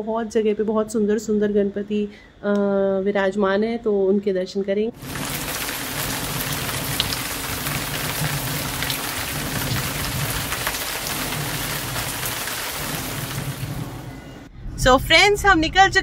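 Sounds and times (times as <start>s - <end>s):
rain on wet paving: 5.0s - 14.2s.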